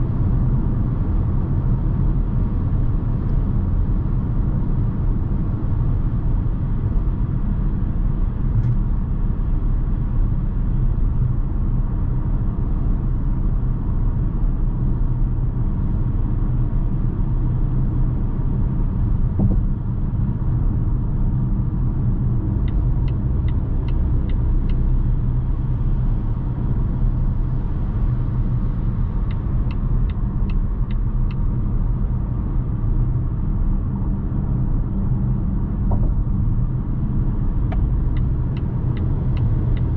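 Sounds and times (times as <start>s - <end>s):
tyres rumbling on road: 0.0s - 39.9s
car engine: 16.6s - 39.9s.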